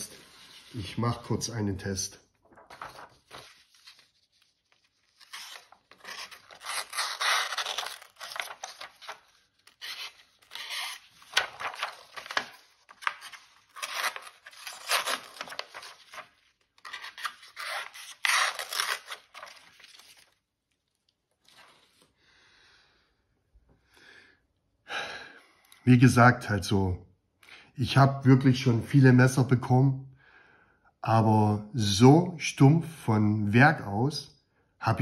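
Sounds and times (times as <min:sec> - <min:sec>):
knife blade rasping through paper: 0:05.2 - 0:11.3.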